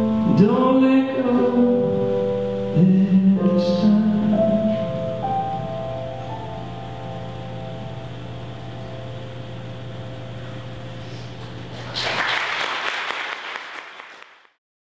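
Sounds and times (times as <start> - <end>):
low steady hum: 0.0 - 12.3
audience applause: 11.4 - 14.6.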